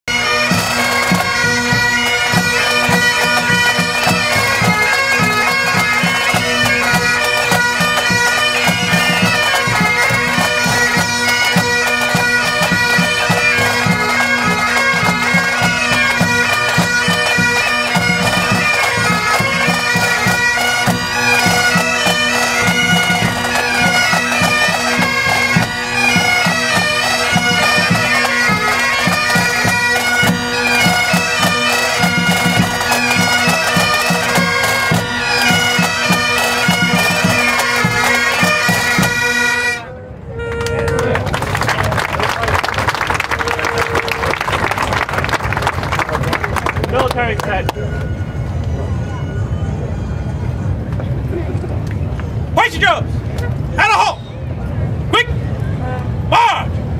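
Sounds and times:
bagpipes playing melody: 0:00.1 - 0:41.1, 0:46.9 - 0:50.8.

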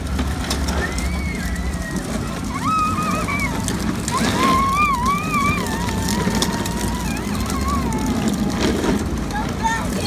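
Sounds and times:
child squealing: 0:00.7 - 0:08.6.

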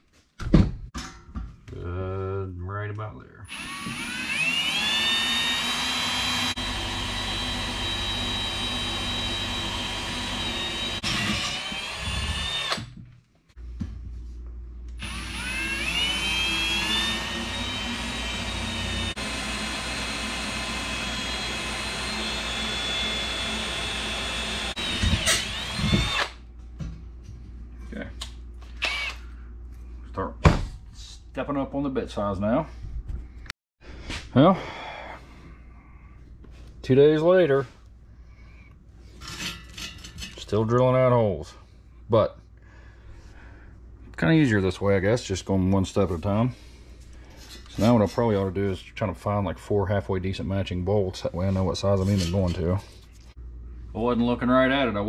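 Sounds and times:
drill boring through metal: 0:03.5 - 0:12.9, 0:15.0 - 0:26.4, 0:28.8 - 0:29.2.

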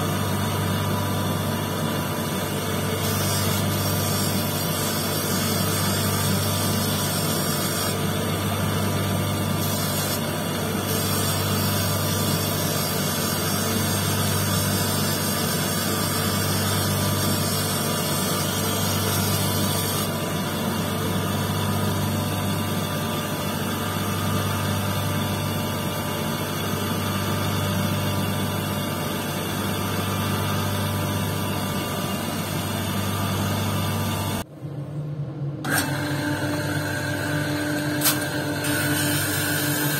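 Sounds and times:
electric motor humming: 0:00.0 - 0:34.4, 0:35.6 - 0:39.9.

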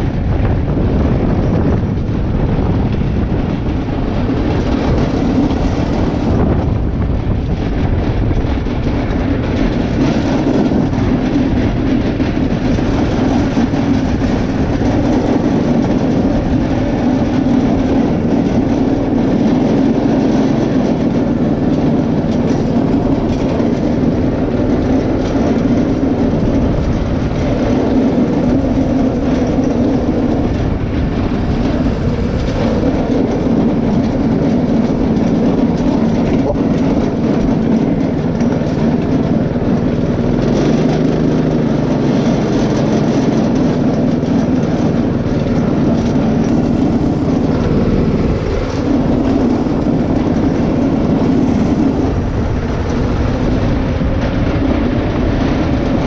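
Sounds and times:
go-kart engine running: 0:00.0 - 0:56.0.

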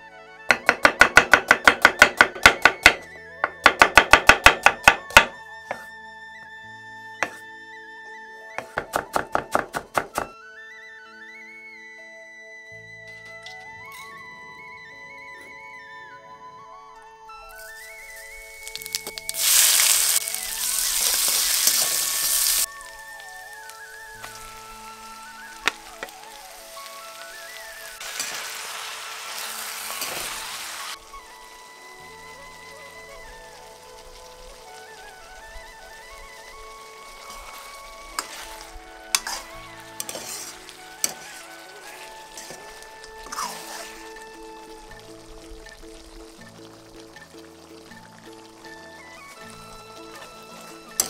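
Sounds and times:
soft background music: 0:00.0 - 0:51.0
knife chopping on wooden board: 0:00.5 - 0:05.3, 0:08.6 - 0:10.3
onions sizzling in hot oil: 0:00.5 - 0:05.9, 0:17.5 - 0:51.0.

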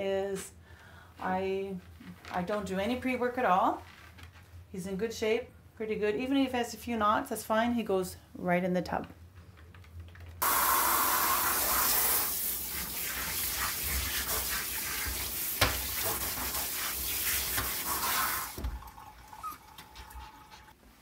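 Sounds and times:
shower sprayer running: 0:10.4 - 0:20.6.

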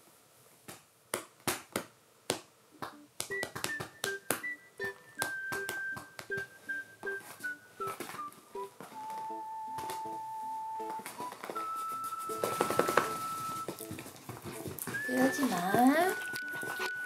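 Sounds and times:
light keyboard music: 0:02.9 - 0:17.0
hand patting dog's fur: 0:10.9 - 0:17.0.

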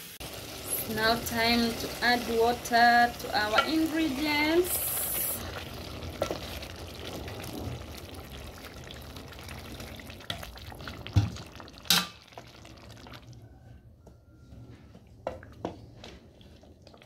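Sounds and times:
water pouring into a pot: 0:00.0 - 0:13.5
sauce bubbling in a pot: 0:00.1 - 0:13.6, 0:15.2 - 0:17.0
wooden spoon stirring: 0:03.3 - 0:07.8.

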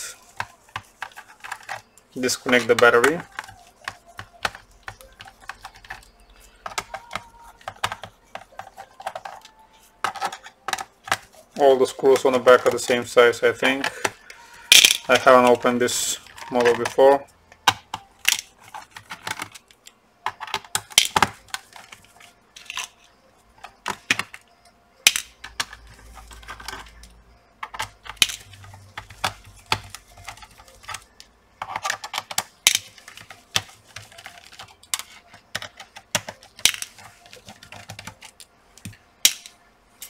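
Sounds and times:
screws dropped into plastic box: 0:14.7 - 0:15.4.

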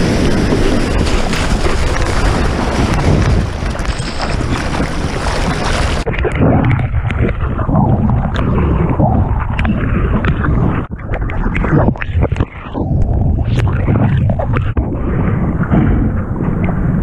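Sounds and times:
whitewater rushing and splashing: 0:00.0 - 0:06.1
muffled underwater sloshing: 0:00.0 - 0:17.0.

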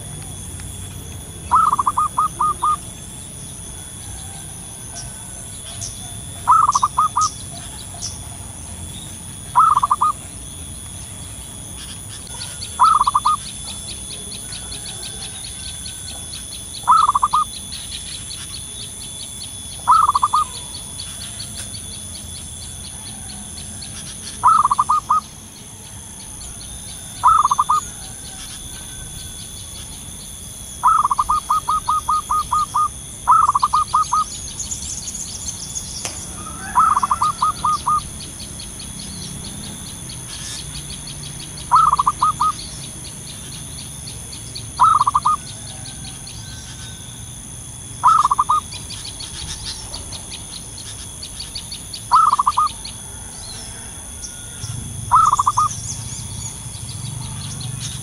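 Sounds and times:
dove cooing: 0:00.0 - 0:10.5, 0:11.7 - 0:18.6, 0:19.8 - 0:29.4, 0:30.8 - 0:34.4, 0:36.2 - 0:38.4, 0:41.6 - 0:42.7, 0:44.7 - 0:47.1, 0:48.0 - 0:50.3, 0:52.1 - 0:56.1.

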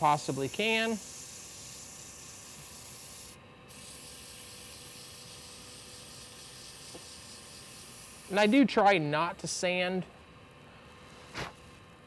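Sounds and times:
sandpaper sanding hiss on a lathe: 0:00.0 - 0:08.8.

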